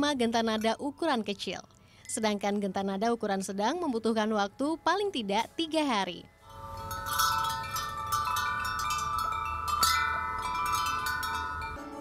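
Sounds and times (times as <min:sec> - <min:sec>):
metal wind chime ringing: 0:02.0 - 0:02.4, 0:06.4 - 0:12.0.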